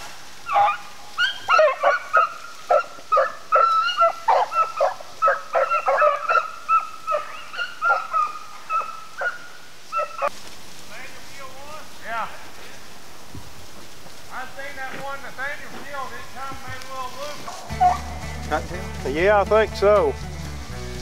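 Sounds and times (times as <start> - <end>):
dogs baying: 0.4 - 10.3, 17.4 - 18.6.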